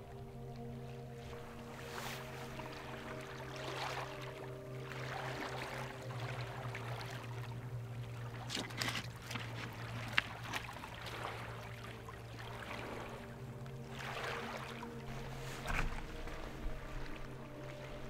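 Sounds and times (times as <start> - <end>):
waves lapping on stony shore: 0.1 - 18.0
sharp clicks and splashes: 6.4 - 12.0.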